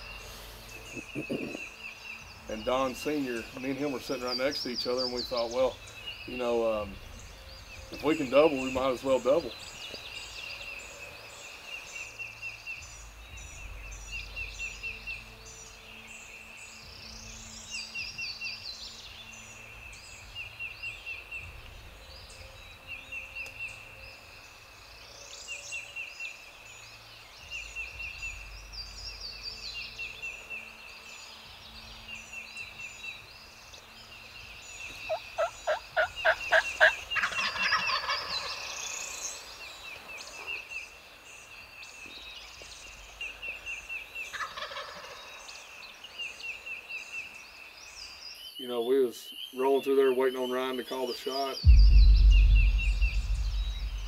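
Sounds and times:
songbirds singing: 0.0 - 54.0
wild turkeys calling: 34.9 - 38.7, 44.3 - 45.4.

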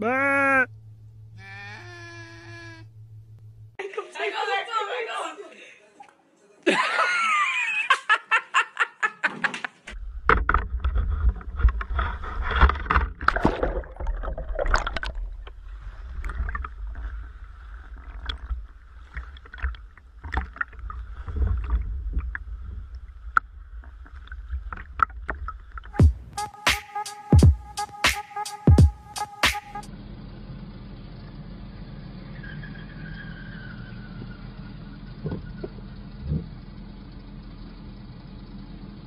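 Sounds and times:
person crying out: 0.0 - 0.7, 1.4 - 2.9
boat engine low rumble: 0.6 - 3.8, 13.9 - 26.4, 29.9 - 39.0
knocks and splashes: 10.2 - 22.5.

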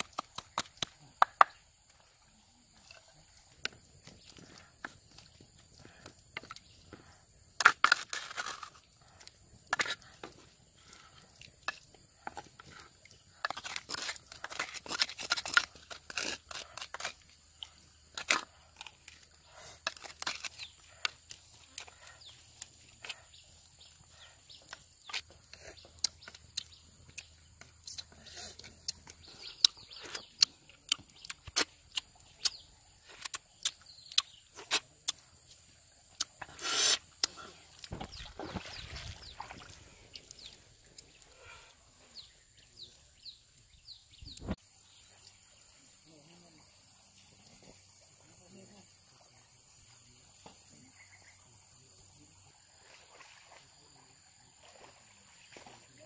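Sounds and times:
eating and mouth sounds: 10.9 - 35.3, 36.1 - 41.5
snail shells clicking: 28.7 - 35.2.

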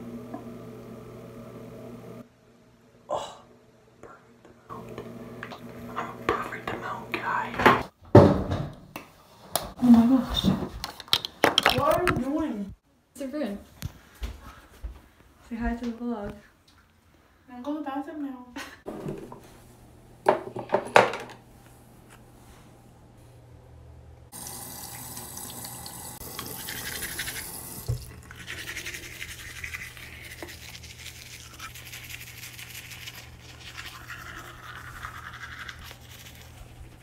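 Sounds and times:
low steady hum: 16.4 - 37.0
toothbrush scrubbing teeth: 26.2 - 37.0.

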